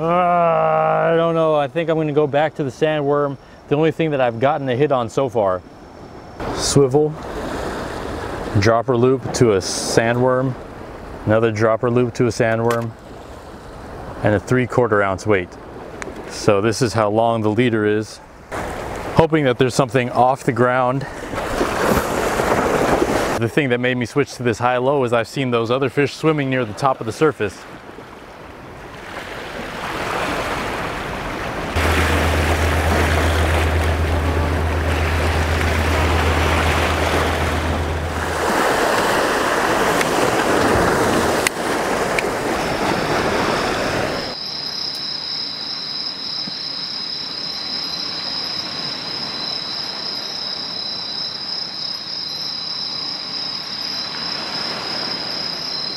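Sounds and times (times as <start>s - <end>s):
insects chirring: 0.5s - 8.5s, 30.4s - 55.9s
sea waves breaking on rocks: 6.4s - 9.6s, 20.6s - 23.4s, 27.4s - 44.4s
low steady hum: 31.8s - 40.4s.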